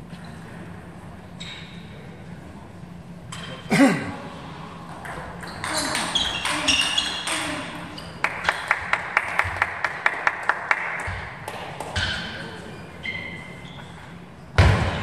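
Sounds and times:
sports shoes squeaking on floor: 1.3s - 1.9s, 5.0s - 8.7s, 11.9s - 14.7s
table tennis ball bouncing: 5.0s - 7.7s.

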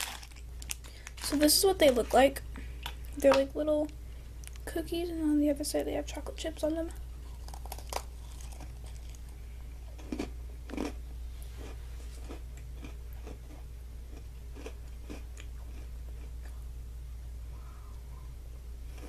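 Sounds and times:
person chewing crunchy cookies: 0.0s - 3.4s, 7.1s - 16.6s.

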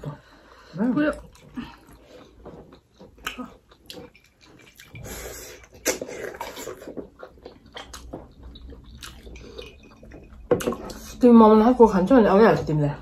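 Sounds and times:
wet chewing and slurping: 0.2s - 11.2s.

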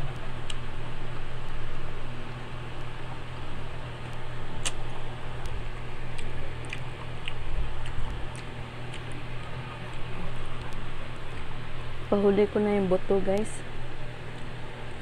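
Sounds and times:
low hum: 0.0s - 15.0s
wet chewing and mouth clicks: 4.6s - 11.4s.

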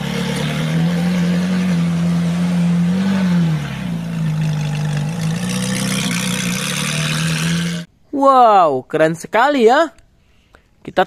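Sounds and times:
car engine running: 0.0s - 7.9s.

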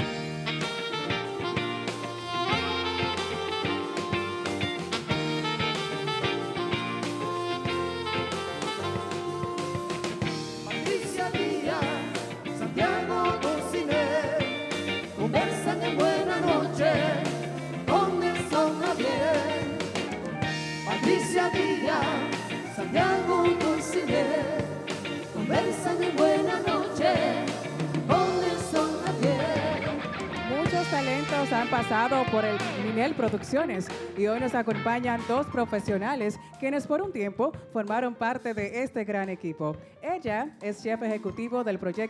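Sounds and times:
electric guitar: 0.0s - 36.5s
drums: 0.0s - 39.4s
keyboard: 0.0s - 42.0s
singers singing together: 10.6s - 20.1s, 20.8s - 30.1s.

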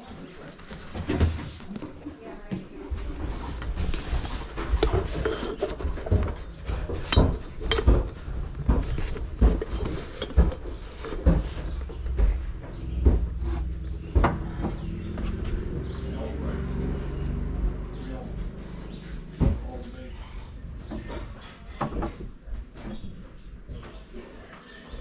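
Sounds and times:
handling noise knocks and rubbing: 0.5s - 16.2s.

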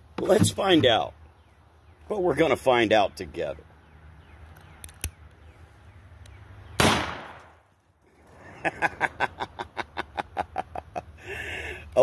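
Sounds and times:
gunshot: 6.8s - 7.6s.

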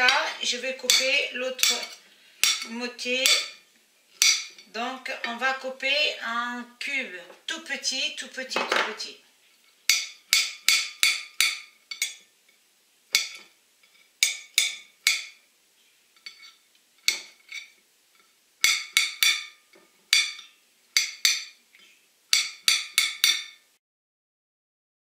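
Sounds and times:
knife clinking on ceramic plate: 0.9s - 3.6s, 4.2s - 4.7s, 9.9s - 12.3s, 13.1s - 15.4s, 16.2s - 17.8s, 18.6s - 21.6s, 22.3s - 23.6s.

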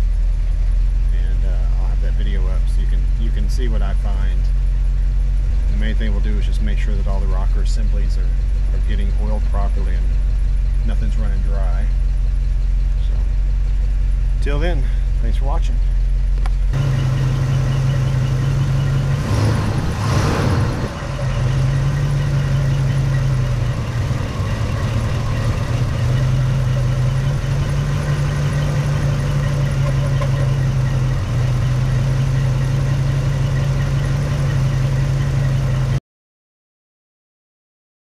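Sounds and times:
engine idling: 0.0s - 36.0s.

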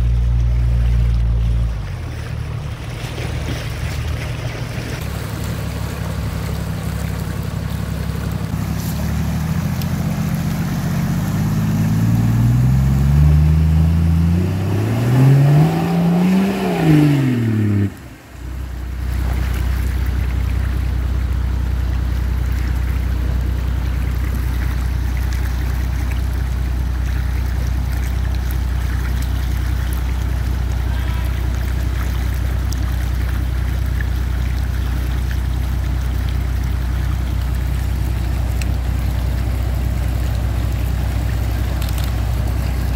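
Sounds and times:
low engine drone: 0.0s - 42.9s
engine revving: 4.9s - 18.2s.

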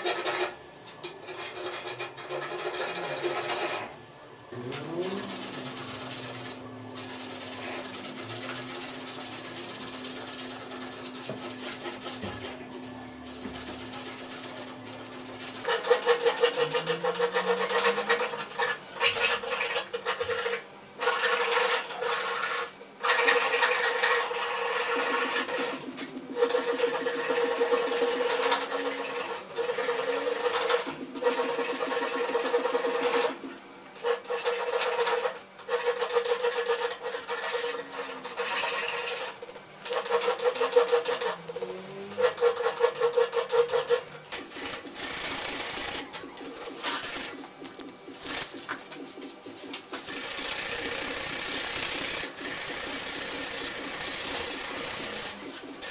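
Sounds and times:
file rasping on steel: 1.2s - 3.9s, 13.4s - 33.4s, 34.0s - 44.1s
sandpaper rubbing on steel: 5.1s - 12.6s, 13.2s - 33.4s, 34.0s - 48.7s, 50.1s - 55.9s.

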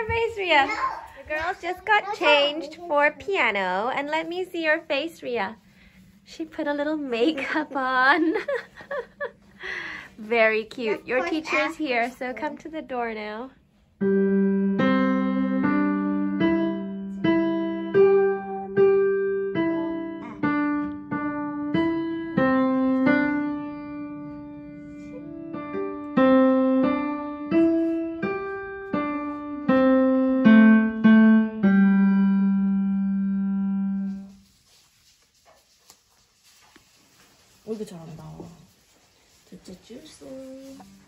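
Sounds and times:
slow digital piano melody: 14.0s - 34.4s.

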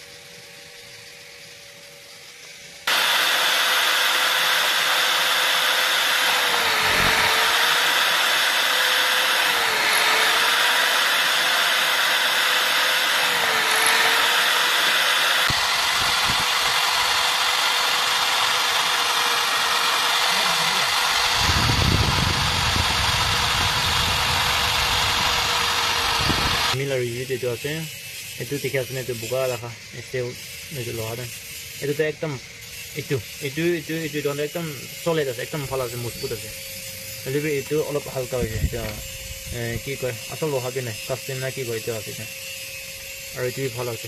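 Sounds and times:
electric drill whining: 2.9s - 31.9s, 32.6s - 44.0s.

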